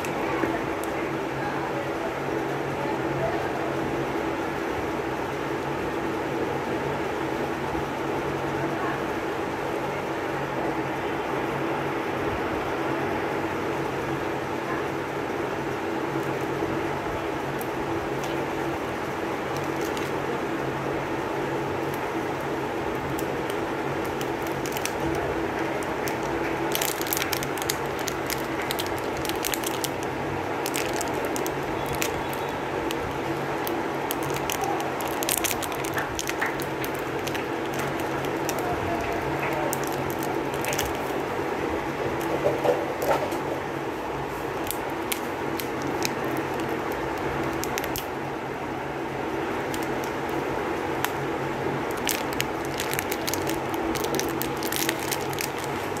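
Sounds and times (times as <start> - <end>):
steady background hum: 0.0 - 56.0
cellophane wrappers crinkling: 16.0 - 20.6, 21.3 - 56.0.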